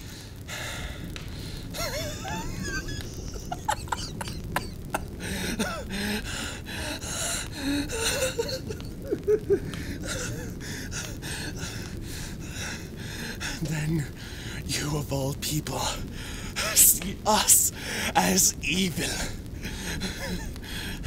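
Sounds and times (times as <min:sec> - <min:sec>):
audible breathing: 0:00.0 - 0:02.0, 0:04.5 - 0:08.8, 0:09.6 - 0:14.7, 0:16.0 - 0:16.8, 0:17.7 - 0:18.2, 0:19.3 - 0:21.0
low background noise: 0:00.0 - 0:21.0.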